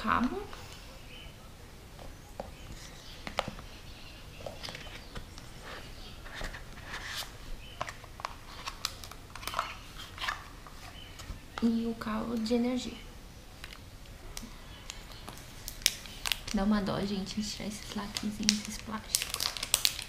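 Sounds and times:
paper and packaging rustling: 2.5s - 11.7s, 14.6s - 20.0s.

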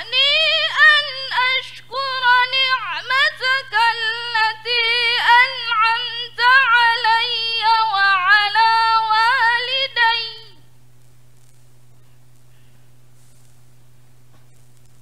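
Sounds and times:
woman chanting recitation: 0.0s - 10.7s.

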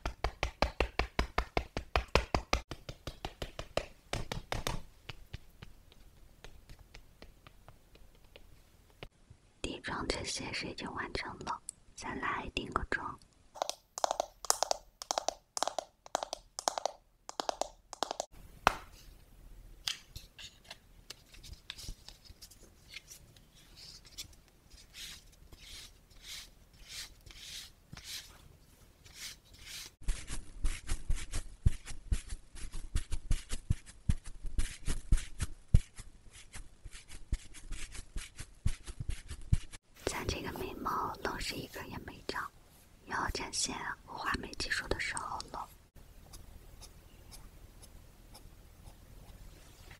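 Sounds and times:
puff patting face: 0.0s - 5.3s
powder puff rubbing powder: 13.6s - 18.3s.

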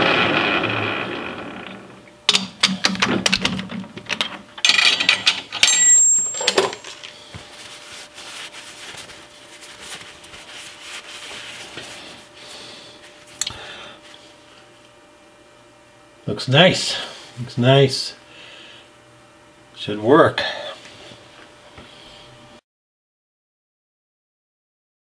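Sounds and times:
metal lathe running down: 0.0s - 3.5s
metal clicks and clanks: 2.3s - 7.0s
rustling of shop towel: 7.0s - 13.4s.

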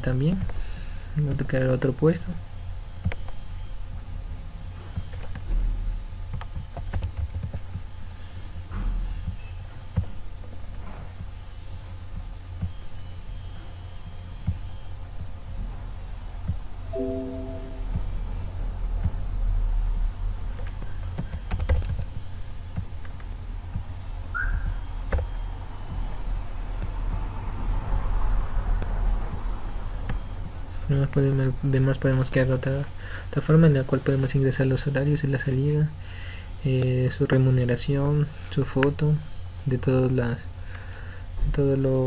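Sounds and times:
brief high chirp: 17.0s - 18.0s
keyboard keys clicking: 20.6s - 22.1s.

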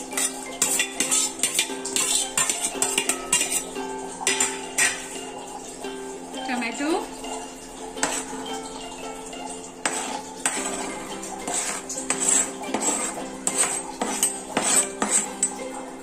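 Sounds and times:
metal spoon scraping and tapping: 0.0s - 5.4s, 8.0s - 8.9s, 9.6s - 16.0s
background music: 0.0s - 16.0s.

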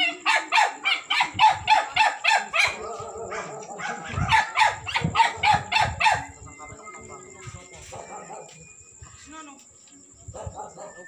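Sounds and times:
dog barking rapidly: 0.0s - 6.3s.

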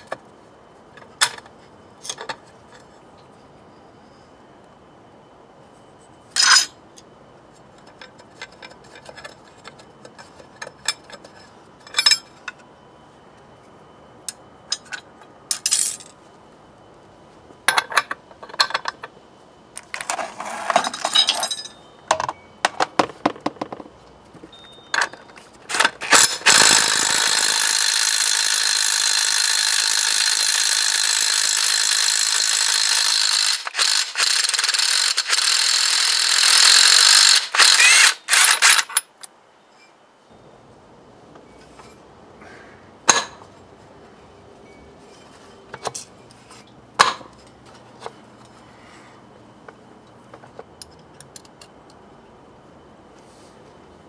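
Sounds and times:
metal parts clinking: 6.4s - 6.8s, 7.8s - 12.6s, 14.7s - 16.2s, 17.7s - 19.1s, 19.8s - 22.4s, 24.5s - 28.2s, 36.6s - 39.4s
cordless power driver running: 26.0s - 38.5s.

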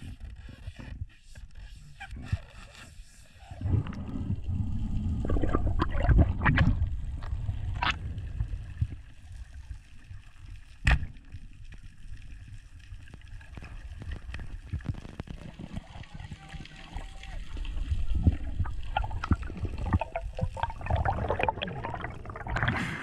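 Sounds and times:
muffled underwater rumble: 0.0s - 23.0s
water rushing against camera housing: 13.4s - 23.0s.

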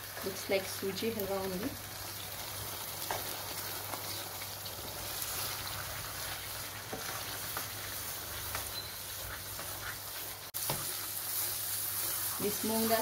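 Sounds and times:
food sizzling in a pan: 0.0s - 13.0s
wooden spoon stirring and scraping: 4.8s - 13.0s.

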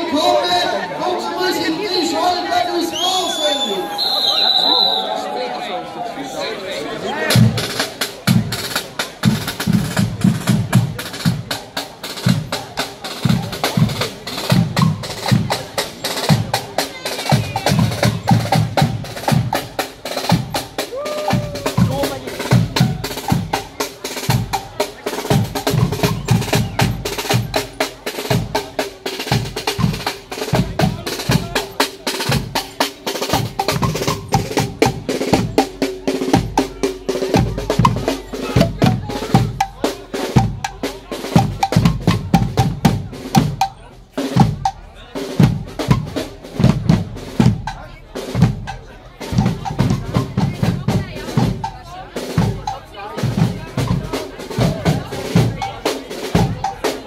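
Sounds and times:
snare drums: 7.1s - 57.0s
cymbals: 7.3s - 57.0s
bass drum: 17.3s - 56.8s.

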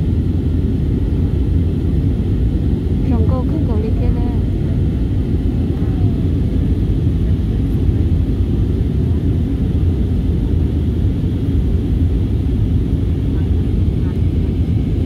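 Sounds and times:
aircraft cabin engine rumble: 0.0s - 15.0s.

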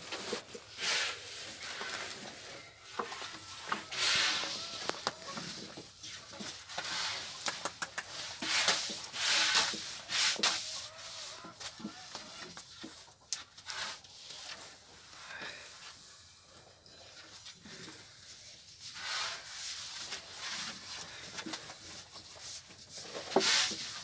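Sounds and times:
rolling pin swishing over dough: 0.1s - 12.6s, 18.5s - 24.0s.

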